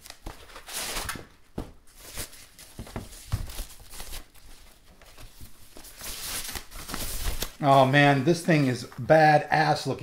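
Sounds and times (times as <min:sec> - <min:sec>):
packing material rustling and crinkling: 0:01.9 - 0:07.9.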